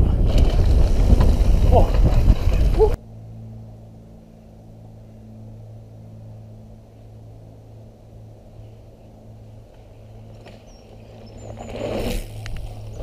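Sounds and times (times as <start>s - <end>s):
bike tyres on dirt trail: 0.0s - 3.0s, 9.6s - 13.0s
rushing wind: 0.0s - 3.0s
steady low hum: 0.0s - 11.4s.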